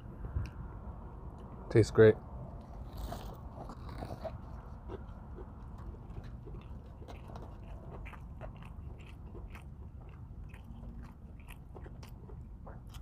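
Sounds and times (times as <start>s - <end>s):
person chewing food: 2.6s - 13.0s
wet mouth clicks and crunches: 2.7s - 13.0s.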